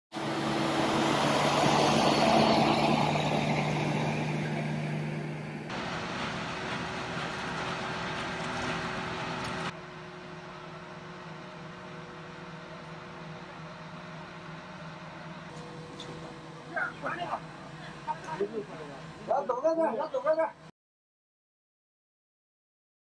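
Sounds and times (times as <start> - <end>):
steady engine hum: 0.1 - 20.7
truck driving past on wet road: 0.2 - 9.8.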